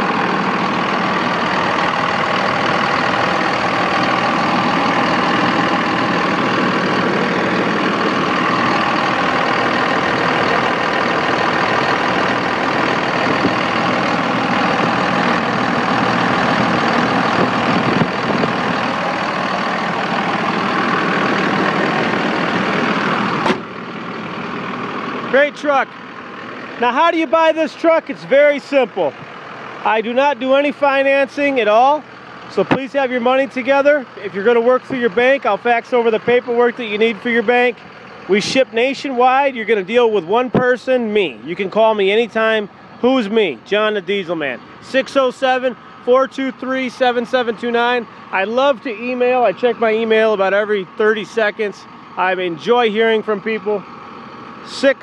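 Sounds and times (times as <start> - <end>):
diesel engine idling: 0.0 - 55.0
sharp knock: 23.4 - 23.7.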